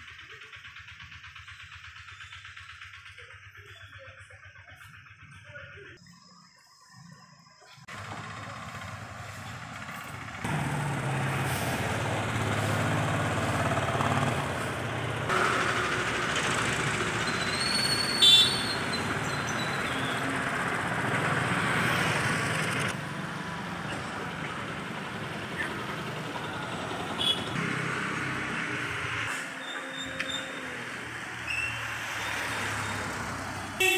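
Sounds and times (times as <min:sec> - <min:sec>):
motor vehicle rumble: 0:00.0 - 0:33.9
short high-pitched squeal: 0:17.2 - 0:19.8, 0:29.3 - 0:33.0.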